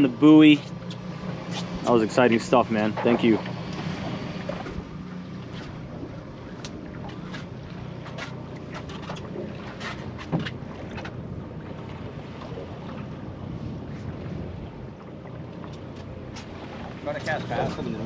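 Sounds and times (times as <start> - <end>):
wind buffeting microphone: 10.3 - 18.0.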